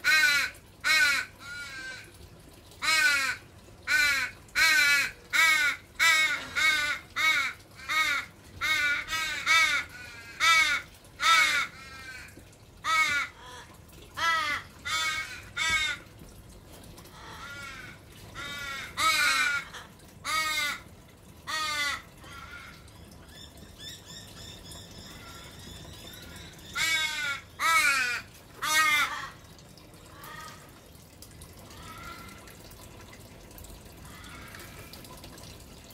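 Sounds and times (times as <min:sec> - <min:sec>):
young raven wailing begging calls: 0:02.8 - 0:16.0, 0:17.2 - 0:20.9, 0:21.5 - 0:22.9, 0:26.7 - 0:29.4, 0:31.7 - 0:32.5.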